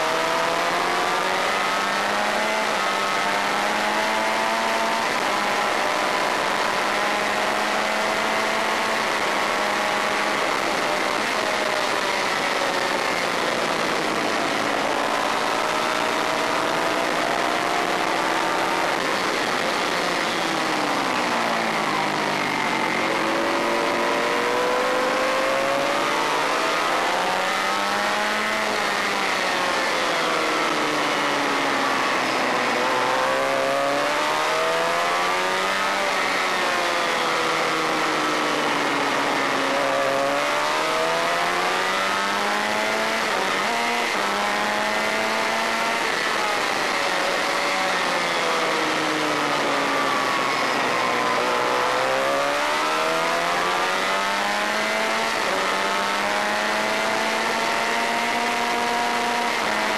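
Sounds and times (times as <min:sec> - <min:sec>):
motorcycle engine at high revs: 0:00.0 - 0:59.9.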